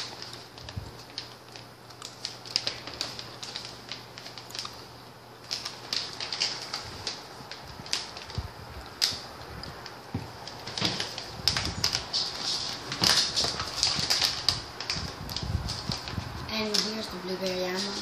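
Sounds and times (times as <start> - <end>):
plastic snack pouch crinkling: 0.0 - 18.0.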